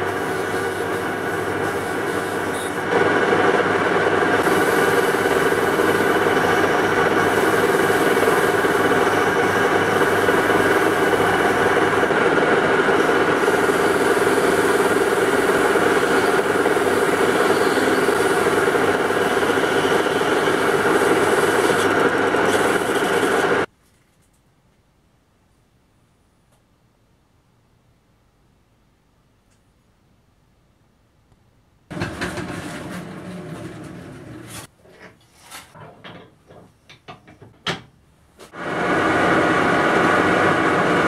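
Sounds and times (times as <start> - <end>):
metal lathe cutting steel: 0.1 - 23.7.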